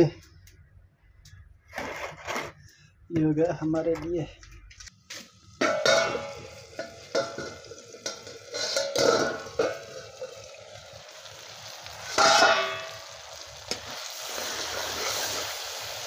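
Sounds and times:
curry sizzling in pan: 0:05.2 - 0:16.0
loud ringing metal clang: 0:05.6 - 0:07.5, 0:12.2 - 0:13.1
ladle scraping metal pan: 0:05.6 - 0:10.5, 0:12.1 - 0:13.0.

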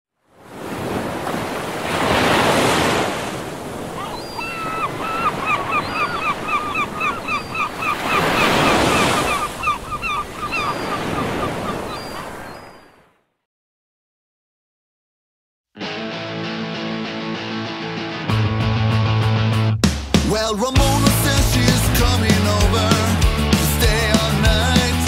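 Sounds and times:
sea waves washing onto shore: 0:00.4 - 0:12.5
bird calling repeated notes: 0:04.0 - 0:13.0.

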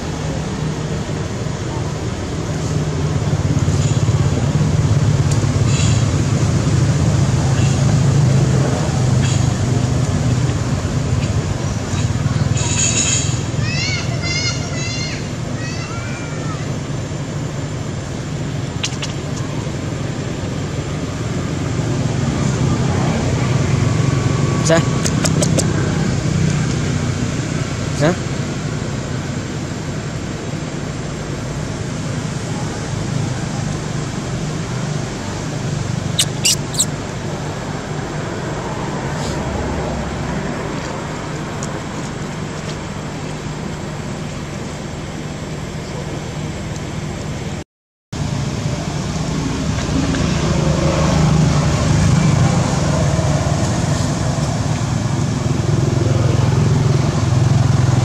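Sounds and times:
low engine hum: 0:00.0 - 0:13.7, 0:48.2 - 0:58.0
short sharp clicks: 0:36.2 - 0:36.9.

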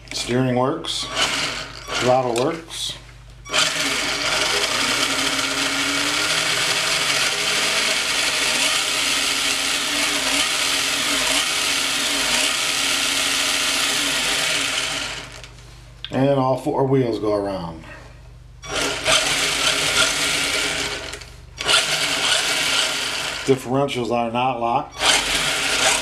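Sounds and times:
toy truck motor and gears whirring: 0:01.0 - 0:02.5, 0:03.5 - 0:15.5, 0:18.6 - 0:23.6, 0:24.9 - 0:26.0.

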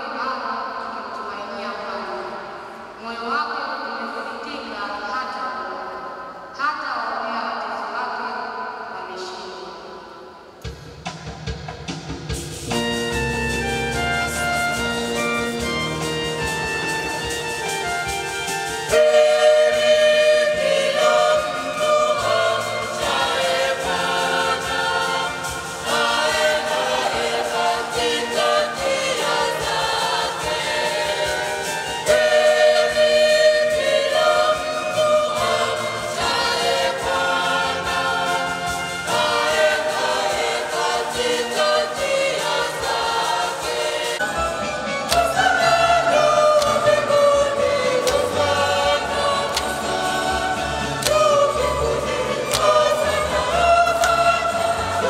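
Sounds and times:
choir singing a hymn: 0:16.9 - 0:55.0.

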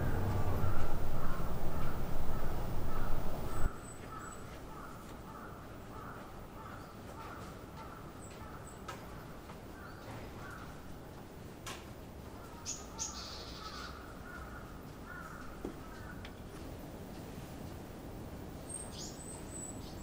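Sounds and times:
low rumble: 0:00.0 - 0:03.7.

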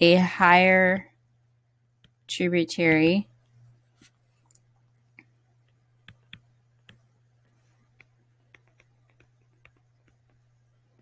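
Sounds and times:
low steady hum: 0:00.0 - 0:11.0
stylus tapping on tablet screen: 0:05.2 - 0:11.0.

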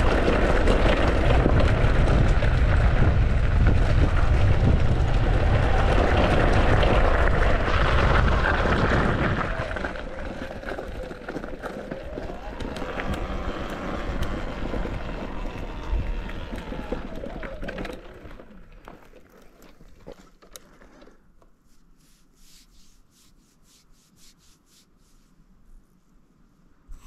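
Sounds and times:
tyre and wind noise: 0:00.0 - 0:23.6
electric motor whine: 0:09.6 - 0:18.7.

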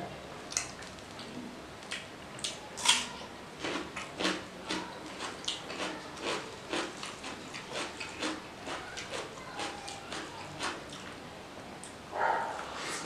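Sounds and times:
wet chewing and smacking: 0:03.6 - 0:11.2.

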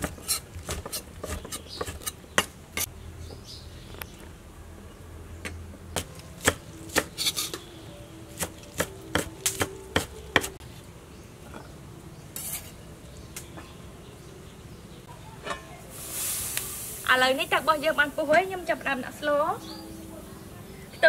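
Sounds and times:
knife chopping on wooden board: 0:00.0 - 0:02.9, 0:06.0 - 0:07.6, 0:08.4 - 0:10.6.

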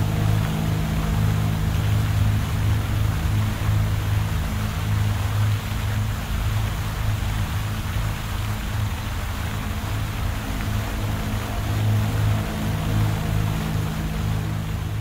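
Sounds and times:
pulsing low drone: 0:00.0 - 0:05.5, 0:09.7 - 0:15.0.

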